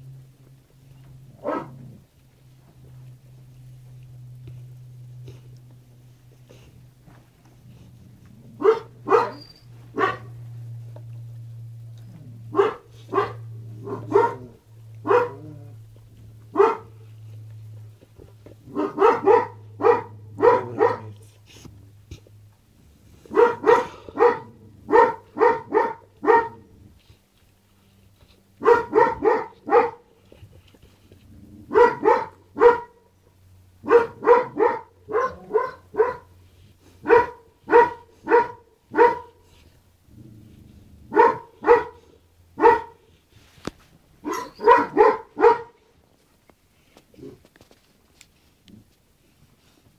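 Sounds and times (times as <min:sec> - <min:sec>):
dog barking: 0:01.4 - 0:01.8, 0:08.6 - 0:10.3, 0:12.5 - 0:15.5, 0:16.5 - 0:17.0, 0:18.7 - 0:21.2, 0:23.3 - 0:26.6, 0:28.6 - 0:30.0, 0:31.7 - 0:33.1, 0:33.8 - 0:36.3, 0:37.0 - 0:39.4, 0:41.1 - 0:43.0, 0:44.2 - 0:45.8.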